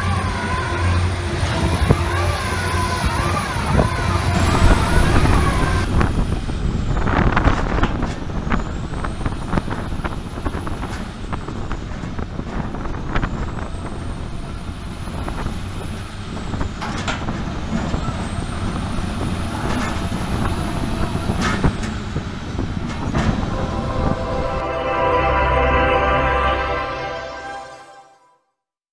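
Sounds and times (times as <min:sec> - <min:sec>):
high whine: 0:04.2 - 0:06.5, 0:22.8 - 0:28.4.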